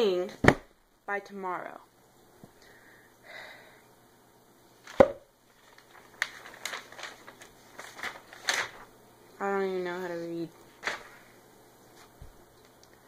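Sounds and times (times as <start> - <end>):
book cover thud: 0.4 - 0.7, 4.9 - 5.2
paper pages flicking: 4.8 - 8.9, 10.8 - 11.2.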